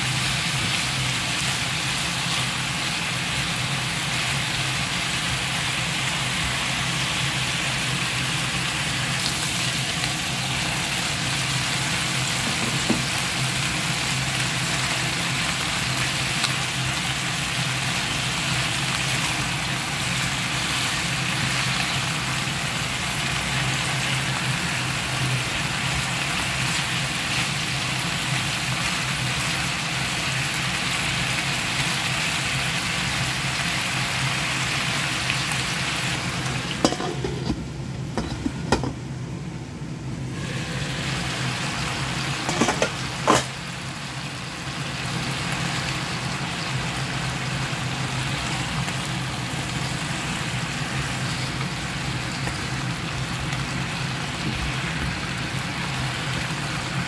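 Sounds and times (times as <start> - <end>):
food sizzling in a frying pan: 0.0 - 39.2, 40.2 - 57.0
metal lid clanking on pan: 36.8 - 37.6, 38.2 - 39.0, 42.4 - 43.6.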